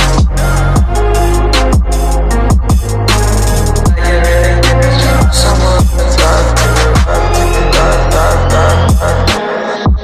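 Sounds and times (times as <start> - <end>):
deep kick drums: 0.0 - 3.2, 3.8 - 4.2, 5.2 - 7.3
sustained bass line: 0.0 - 9.4.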